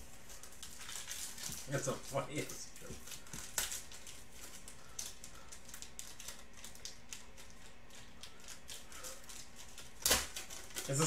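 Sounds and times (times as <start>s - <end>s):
foil wrapper crinkling: 0.2s - 11.0s.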